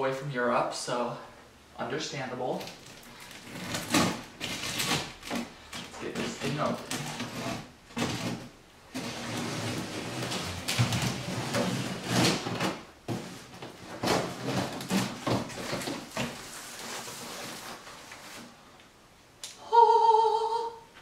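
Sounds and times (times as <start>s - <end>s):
cardboard box scrapes and rustles: 6.1s - 18.5s.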